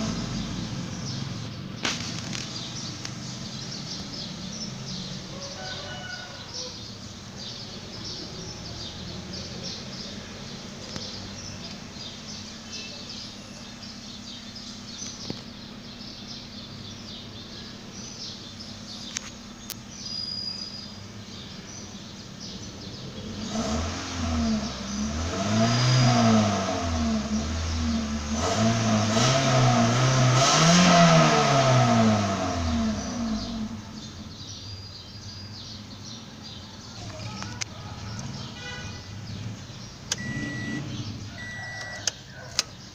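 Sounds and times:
car engine idling and revving: 0.0 - 42.9.

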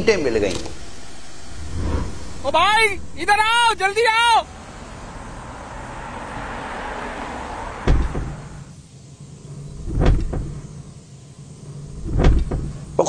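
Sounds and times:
low steady drone: 0.0 - 5.3
whoosh: 0.7 - 4.1.

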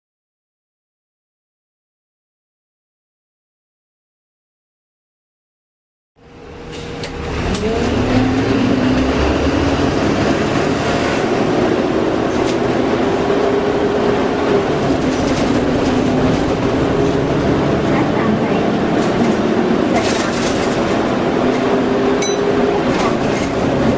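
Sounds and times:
bus diesel engine running: 6.2 - 23.9.

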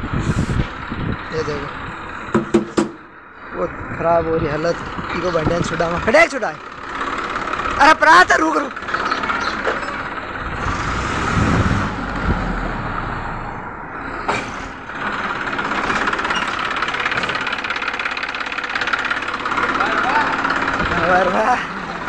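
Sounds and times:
tractor diesel engine running: 0.0 - 22.0
sharp knock: 2.3 - 3.0
low rumble: 10.2 - 14.9.

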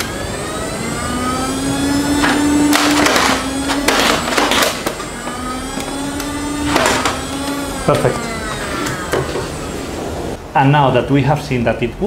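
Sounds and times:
toy blaster flywheel motors whining: 0.0 - 9.8
darts firing: 2.2 - 5.0.

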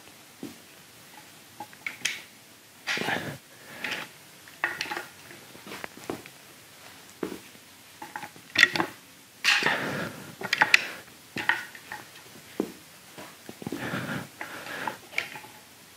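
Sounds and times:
scuffing on gym mat: 5.6 - 7.5.

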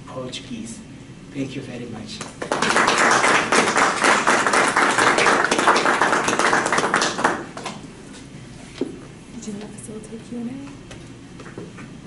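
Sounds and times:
audience applauding: 2.4 - 7.8.

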